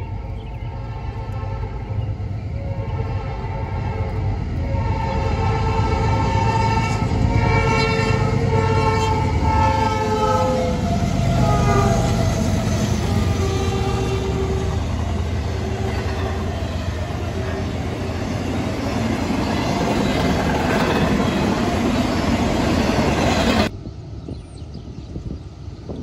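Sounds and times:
train cars rumbling by: 0.0 - 26.0
locomotive air horn: 0.7 - 1.9, 2.5 - 19.0.

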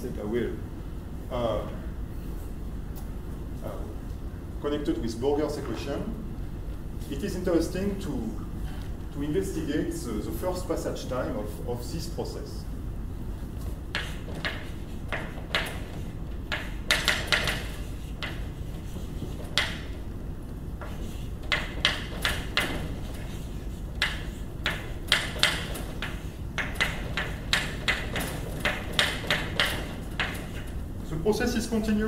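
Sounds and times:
chalk tapping and scratching on blackboard: 13.9 - 20.0, 20.8 - 30.8.

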